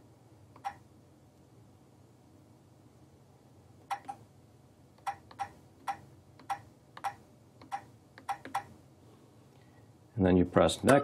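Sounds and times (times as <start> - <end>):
stylus tapping touchscreen keys: 3.9 - 4.2, 5.0 - 8.8.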